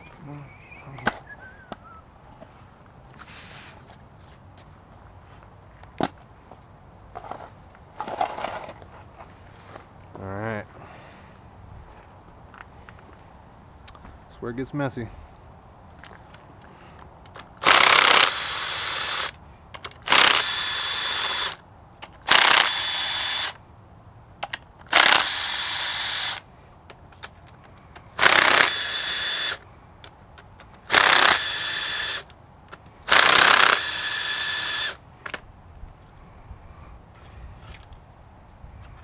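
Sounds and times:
cordless power driver running: 0:17.6 - 0:19.3, 0:20.1 - 0:21.6, 0:22.3 - 0:23.6, 0:24.9 - 0:26.4, 0:28.2 - 0:29.6, 0:30.9 - 0:32.3, 0:33.1 - 0:35.0.

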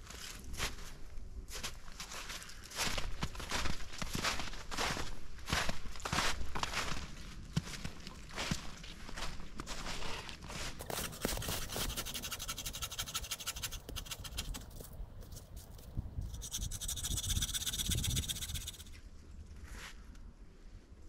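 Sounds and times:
hand saw rasping through branch: 0:10.8 - 0:14.8, 0:16.3 - 0:18.9.

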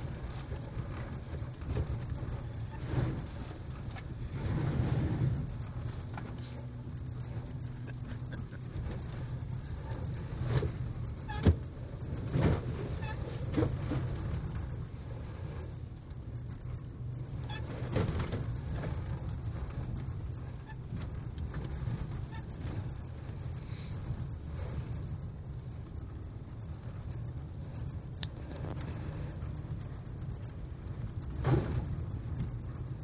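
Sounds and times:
engine and tyre rumble: 0:00.0 - 0:33.0.

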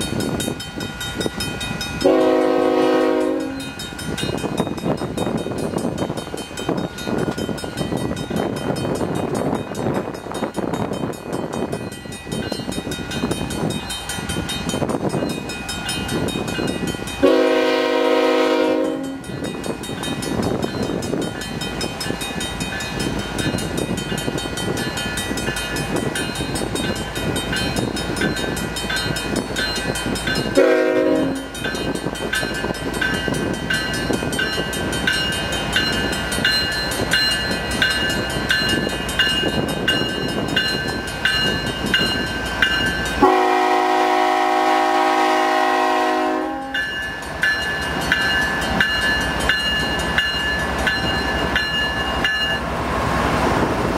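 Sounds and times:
crossing bell ringing: 0:00.0 - 0:52.8
diesel locomotives rumbling: 0:00.0 - 0:53.9
wind noise on microphone: 0:00.0 - 0:53.9
train horn blasts: 0:02.0 - 0:03.7, 0:17.2 - 0:19.3, 0:30.6 - 0:31.6, 0:43.2 - 0:46.9.

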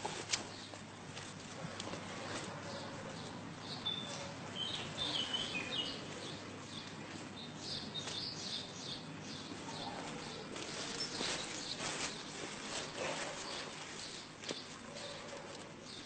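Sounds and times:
outdoor background noise: 0:00.0 - 0:16.0
birds chirping: 0:02.2 - 0:16.0.

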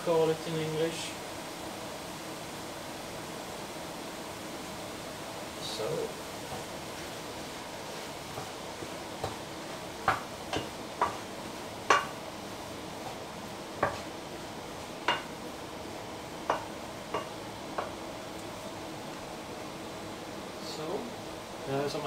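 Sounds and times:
steady hiss: 0:00.0 - 0:22.0
wooden spatula knocking a pan: 0:08.3 - 0:12.2, 0:13.8 - 0:14.1, 0:15.0 - 0:15.4, 0:16.4 - 0:18.0.

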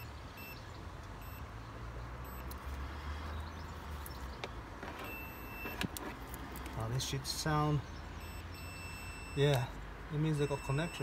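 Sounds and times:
multimeter beeping: 0:01.2 - 0:01.4, 0:02.2 - 0:02.5, 0:05.0 - 0:05.9, 0:08.2 - 0:09.7, 0:10.4 - 0:11.0.

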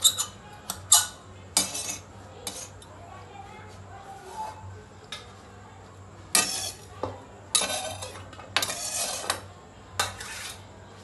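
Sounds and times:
metal utensils scraping stone: 0:00.0 - 0:02.8, 0:06.3 - 0:06.9, 0:07.5 - 0:09.4, 0:10.0 - 0:10.6.

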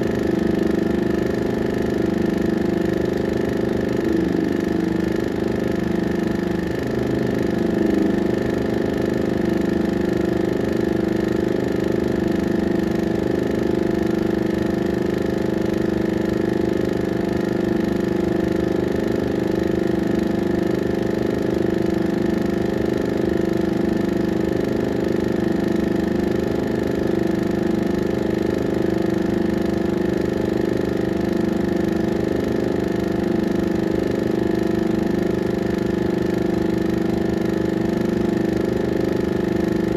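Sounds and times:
projector motor hum: 0:00.0 - 0:39.9.

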